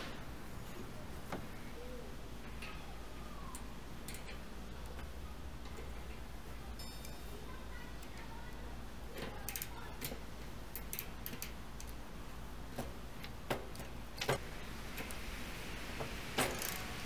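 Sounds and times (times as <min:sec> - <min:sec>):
steady low hum: 0:00.0 - 0:17.0
wrench clicking on bicycle hub: 0:03.5 - 0:04.5, 0:09.4 - 0:12.0, 0:16.4 - 0:17.0.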